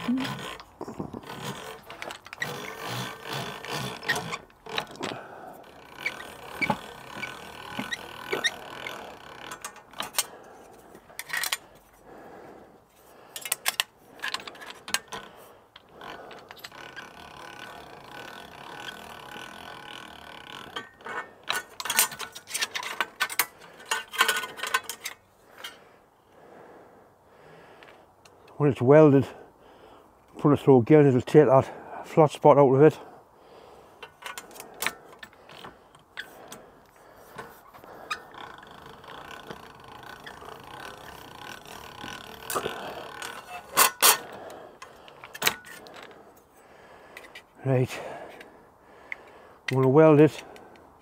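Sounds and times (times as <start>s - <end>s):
slip roll gears clicking: 0.0s - 10.4s, 13.4s - 25.8s, 37.3s - 46.2s
steel strip clanking and scraping: 0.0s - 12.0s, 13.3s - 25.8s, 34.0s - 47.5s.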